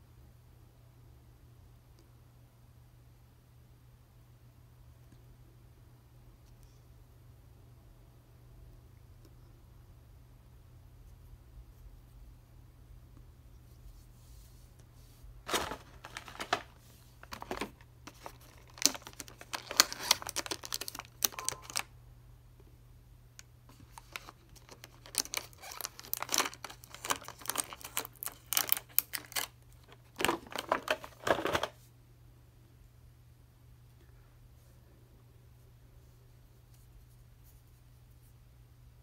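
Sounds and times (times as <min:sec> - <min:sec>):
plastic packaging crackling: 0:15.4 - 0:21.9, 0:23.8 - 0:31.8.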